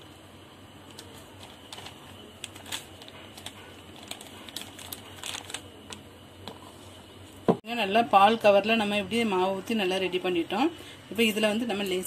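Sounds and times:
plastic packet crinkling: 0:00.9 - 0:06.0.

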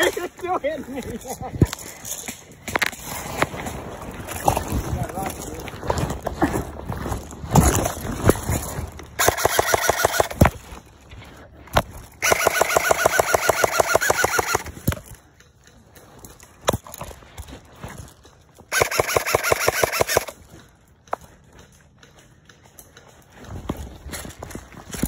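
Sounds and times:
airsoft gun firing bursts: 0:09.2 - 0:10.5, 0:12.2 - 0:14.9, 0:18.7 - 0:20.4.

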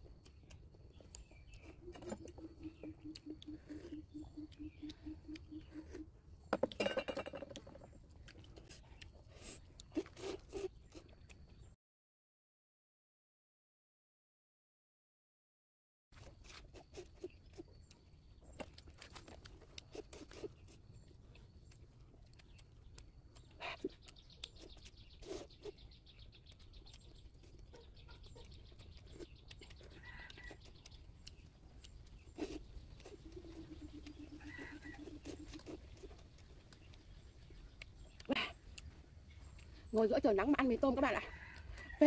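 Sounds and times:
high bird chirps: 0:01.2 - 0:06.1, 0:32.1 - 0:36.1
drawn-out low animal call: 0:33.1 - 0:35.7.

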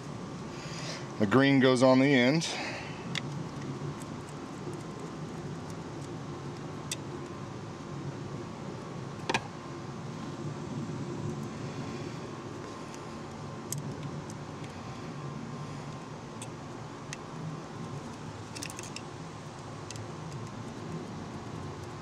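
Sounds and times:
steady background hum: 0:00.0 - 0:22.0
small metallic clicks: 0:18.0 - 0:22.0.

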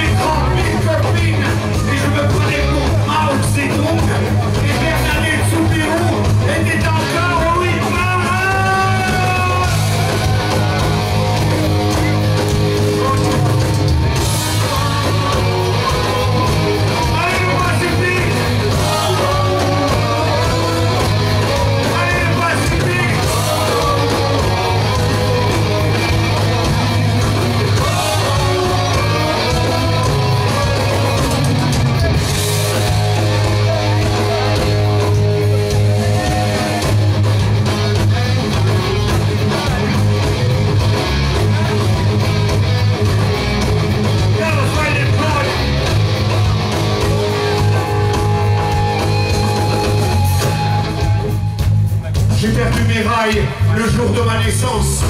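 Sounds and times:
man singing: 0:00.0 - 0:10.0, 0:14.3 - 0:37.0
live rock band playing: 0:00.0 - 0:55.0.

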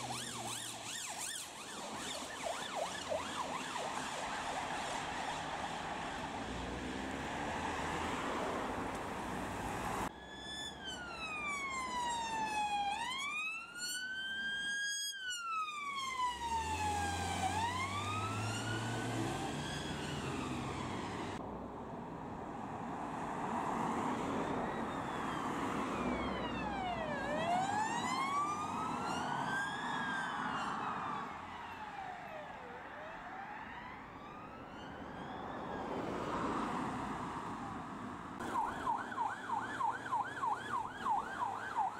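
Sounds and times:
police sirens wailing: 0:00.0 - 0:21.4, 0:23.8 - 0:41.9
road traffic noise: 0:00.0 - 0:41.9.

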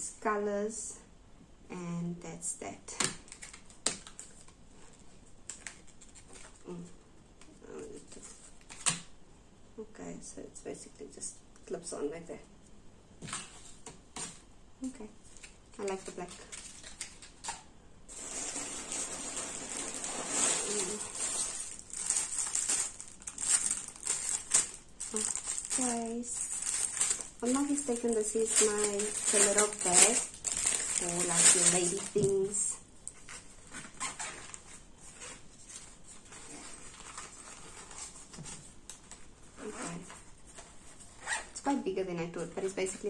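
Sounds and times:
plastic packaging rustling: 0:03.2 - 0:06.7, 0:15.2 - 0:41.4
fabric pouch rustling: 0:18.1 - 0:32.6.

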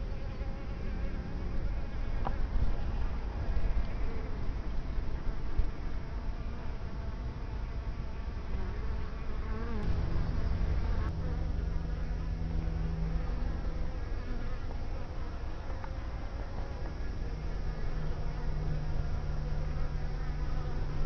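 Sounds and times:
bees buzzing: 0:00.0 - 0:21.0
steady low rumble: 0:09.8 - 0:21.0.

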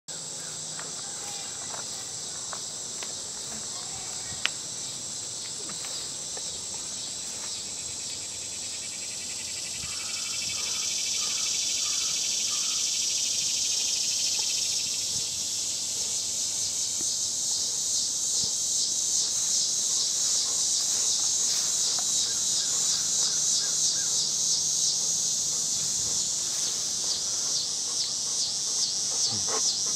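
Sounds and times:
high-pitched insect chorus: 0:00.1 - 0:29.9.

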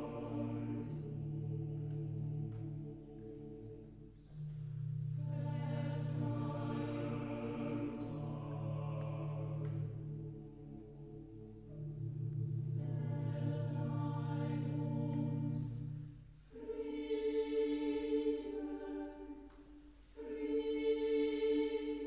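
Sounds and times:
choir singing sustained chords: 0:00.0 - 0:22.0.

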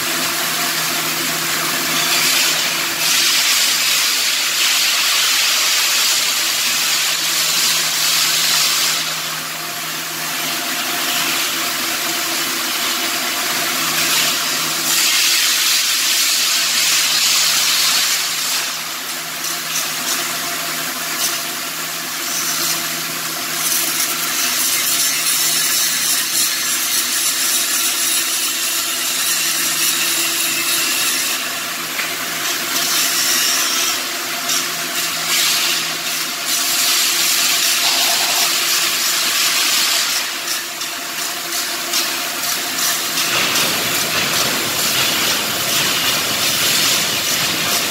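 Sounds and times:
welding arc crackling and hissing: 0:00.0 - 0:47.9.

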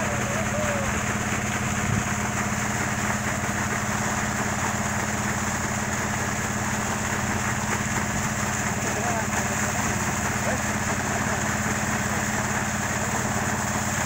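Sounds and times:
pump motor running: 0:00.0 - 0:14.0
water gushing from pipe: 0:00.0 - 0:14.0.

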